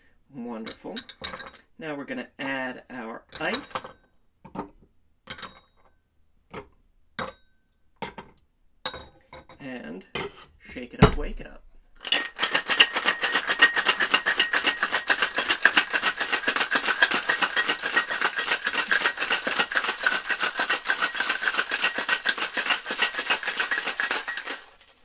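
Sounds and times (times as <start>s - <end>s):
ice rattling in cocktail shaker: 12.0s - 25.0s.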